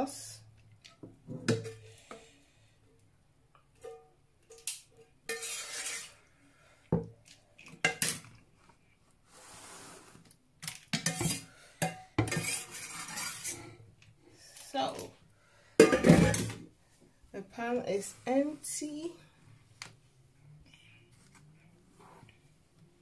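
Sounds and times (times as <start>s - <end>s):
metal spoon scraping a pan: 5.3s - 6.4s, 10.9s - 13.8s.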